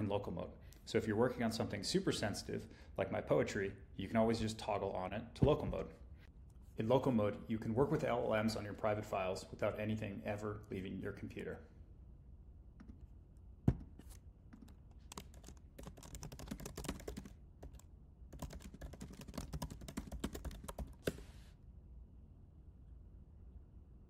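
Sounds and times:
keyboard typing: 0:14.6 - 0:21.3.

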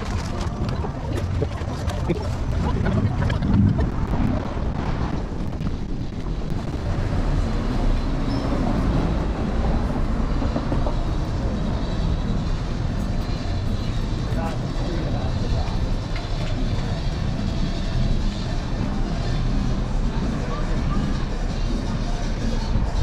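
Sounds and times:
wind noise: 0:00.0 - 0:09.6
road rumble: 0:00.0 - 0:23.0.

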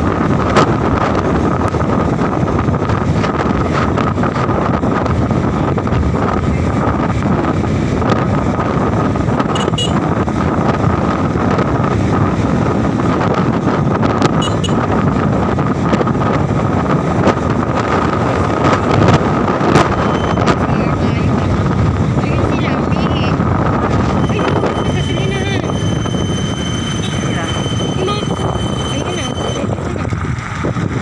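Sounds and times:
road and engine noise: 0:00.0 - 0:31.0
wind buffeting microphone: 0:00.0 - 0:31.0
thin steady whine: 0:24.1 - 0:29.9.

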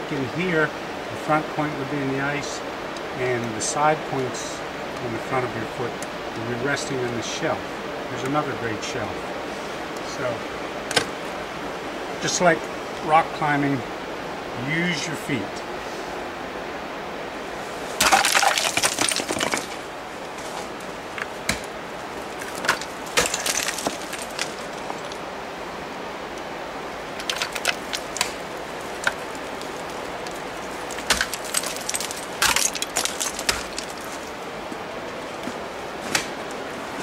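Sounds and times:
steady hiss: 0:00.0 - 0:37.0
crampons kicking into ice: 0:18.0 - 0:19.8, 0:22.4 - 0:25.2, 0:27.2 - 0:28.4, 0:30.8 - 0:34.3
ice chips clattering: 0:18.0 - 0:19.8, 0:22.4 - 0:25.2, 0:27.2 - 0:34.4.

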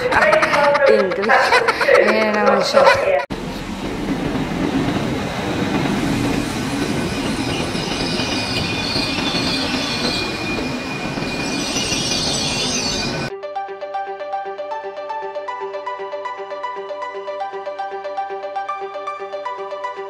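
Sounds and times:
train wheels rumbling on rails: 0:03.0 - 0:13.3
high wheel and brake squeal: 0:06.4 - 0:13.3.

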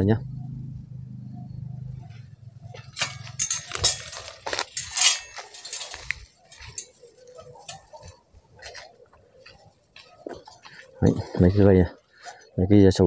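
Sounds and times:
dry leaves crackling underfoot: 0:02.7 - 0:11.6.

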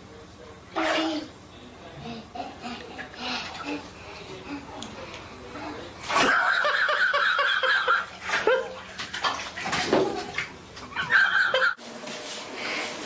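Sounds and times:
water splashing in bathtub: 0:02.6 - 0:05.1, 0:06.0 - 0:11.8.

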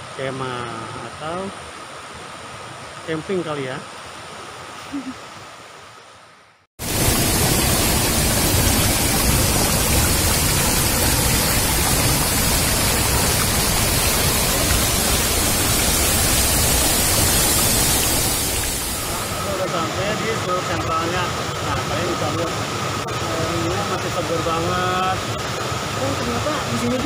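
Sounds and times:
waterfall rushing: 0:06.8 - 0:27.0.

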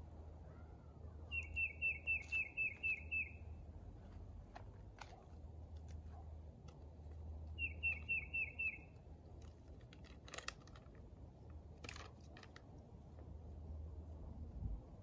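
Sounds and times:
low background hum: 0:00.0 - 0:15.0
songbird whistling: 0:01.3 - 0:03.6, 0:07.6 - 0:09.0
rustles: 0:01.3 - 0:13.3.

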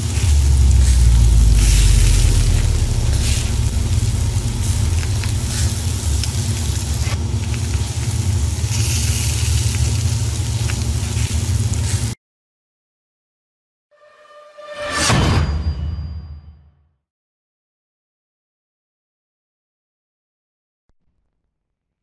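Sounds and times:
fire crackling: 0:00.0 - 0:12.2
fire rumbling: 0:00.0 - 0:12.2.

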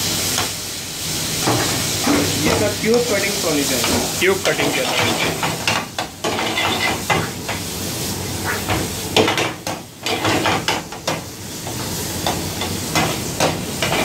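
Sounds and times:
vegetables sizzling in a wok: 0:00.0 - 0:14.0
metal ladle scraping a pan: 0:06.3 - 0:07.4.

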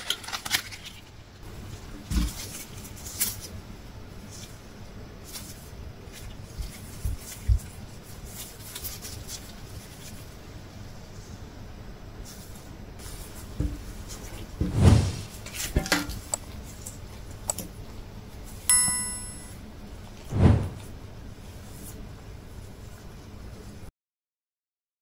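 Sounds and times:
short bright ringing chime: 0:18.7 - 0:19.6.

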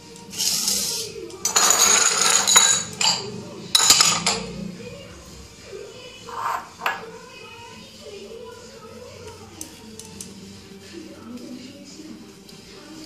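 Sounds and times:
spoon scraping butter on bread: 0:06.2 - 0:07.2.

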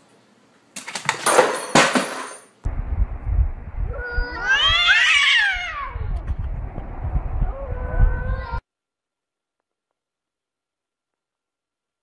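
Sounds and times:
low rumble: 0:02.7 - 0:04.9, 0:05.5 - 0:08.6
cat yowling: 0:03.9 - 0:06.2.

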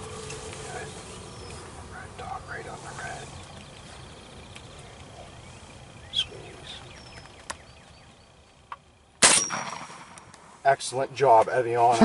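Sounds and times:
shotgun shot: 0:09.2 - 0:10.4.

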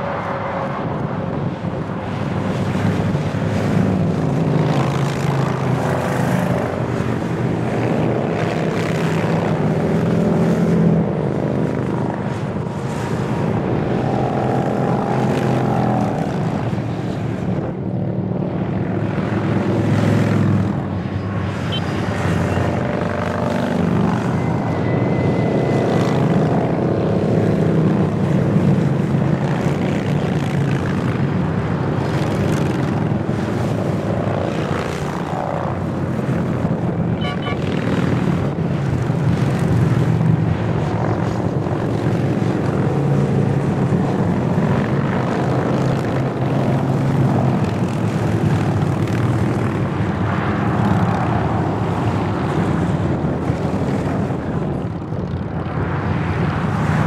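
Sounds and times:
motorcycle engines droning: 0:00.0 - 0:57.0.

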